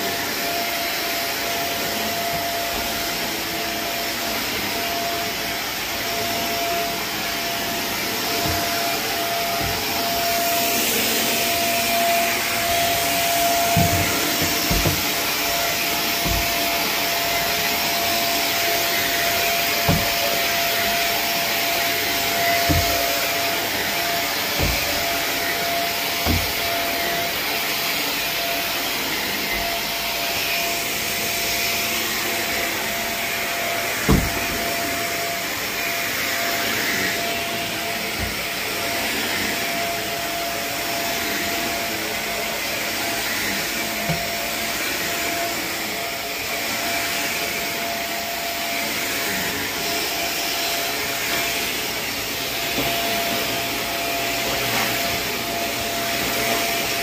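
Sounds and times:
carpet cleaning machine roaring: 0:00.0 - 0:57.0
dull thumps: 0:12.7 - 0:15.6, 0:16.2 - 0:16.9, 0:19.8 - 0:20.2, 0:22.6 - 0:23.2, 0:24.6 - 0:25.2, 0:26.2 - 0:26.7, 0:34.1 - 0:34.6.

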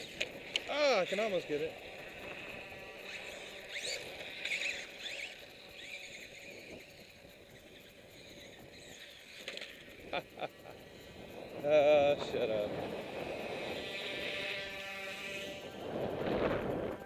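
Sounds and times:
sharp clicks: 0:00.0 - 0:00.7
toy motor whining: 0:00.0 - 0:17.0.

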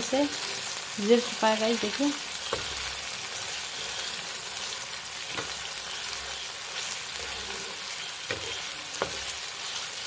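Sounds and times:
chicken sizzling in oil: 0:00.0 - 0:10.0
spoon knocking against pan: 0:08.2 - 0:09.4.

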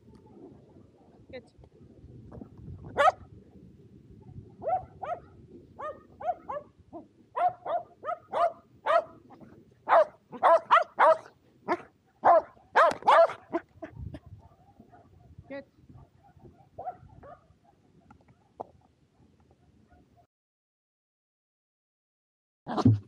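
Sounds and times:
dog barking excitedly: 0:03.0 - 0:03.2, 0:04.6 - 0:06.7, 0:07.4 - 0:09.2, 0:09.9 - 0:15.1, 0:16.0 - 0:17.8.

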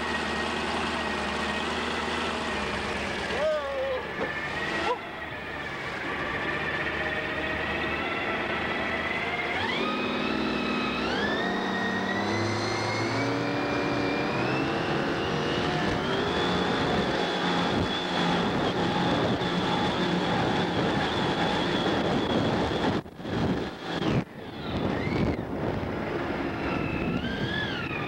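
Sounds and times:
boat engine revving: 0:00.0 - 0:28.0.

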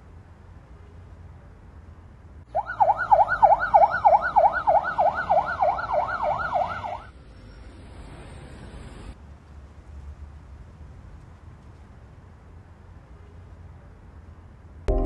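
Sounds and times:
police siren yelping: 0:02.5 - 0:07.1.

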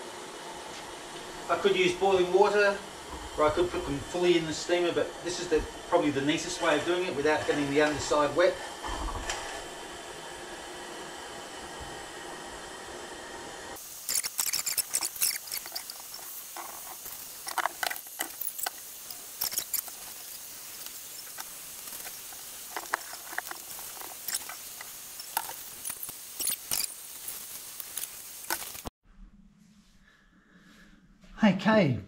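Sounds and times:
steamer hissing: 0:00.0 - 0:28.9
steam spitting and crackling: 0:00.8 - 0:10.8, 0:13.8 - 0:28.9.

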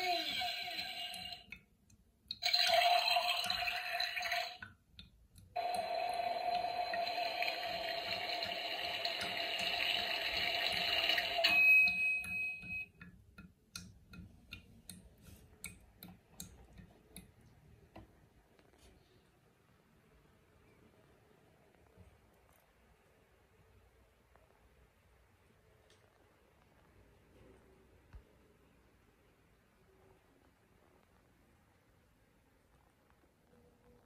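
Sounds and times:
toy coffee machine pump whine: 0:00.0 - 0:01.5, 0:02.4 - 0:04.6, 0:05.6 - 0:11.6.

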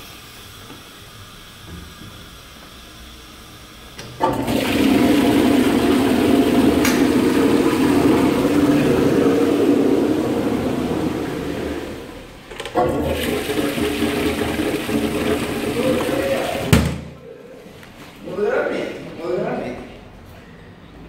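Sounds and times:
toilet flushing: 0:03.1 - 0:17.2.

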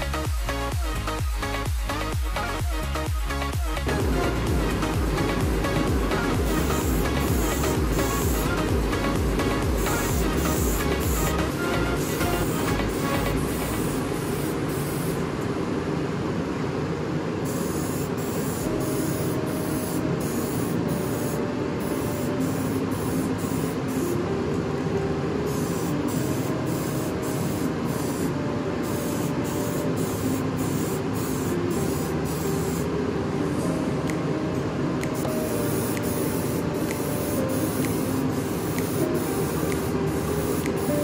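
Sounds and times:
spray-paint can hissing: 0:00.0 - 0:15.2, 0:17.4 - 0:24.2, 0:25.5 - 0:32.9, 0:35.0 - 0:41.0.

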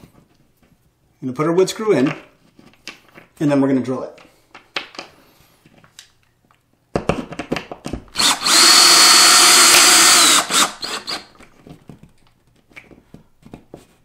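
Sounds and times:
cordless drill whining: 0:08.1 - 0:11.4.

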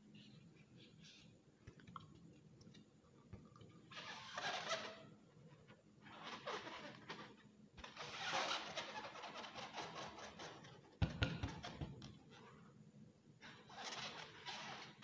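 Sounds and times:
rubbery balloon squeaks: 0:03.9 - 0:05.1, 0:06.1 - 0:10.8.

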